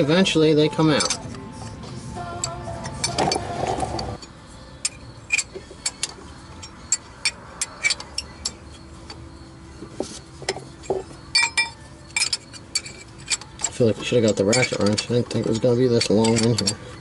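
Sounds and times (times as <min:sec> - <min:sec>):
wrench clinking on a nut: 0:00.8 - 0:01.4, 0:04.2 - 0:09.2, 0:10.5 - 0:16.9.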